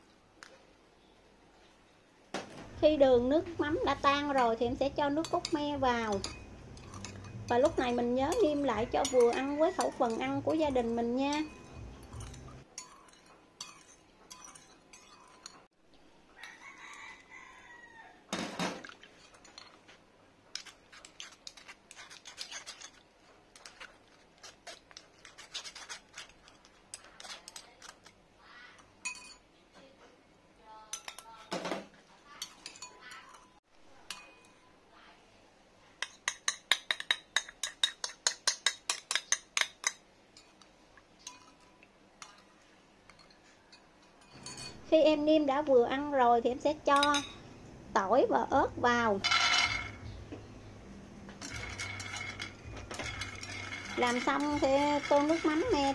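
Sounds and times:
metal spoon clinking on bowl: 4.0 - 15.7, 29.0 - 29.4, 30.9 - 31.5, 32.4 - 34.7, 36.0 - 42.5, 43.1 - 44.8, 47.0 - 47.4, 51.4 - 55.9.

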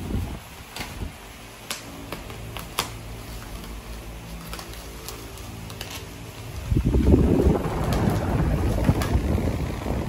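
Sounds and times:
low steady hum: 0.0 - 10.0
scissors cutting plastic wrap: 0.7 - 6.6.

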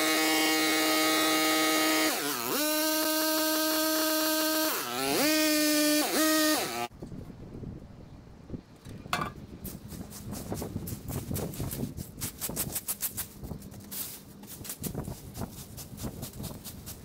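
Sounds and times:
rake scraping through leaves: 9.7 - 17.0.

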